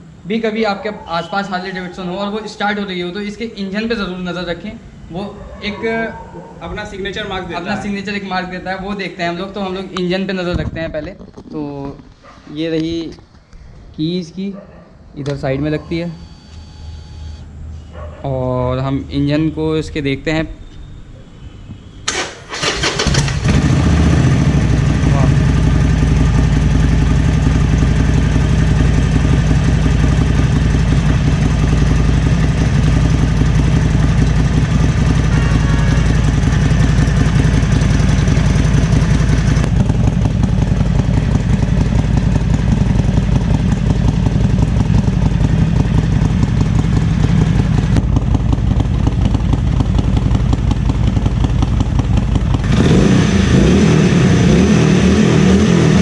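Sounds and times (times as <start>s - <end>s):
motorcycle engine idling: 22.1s - 53.1s.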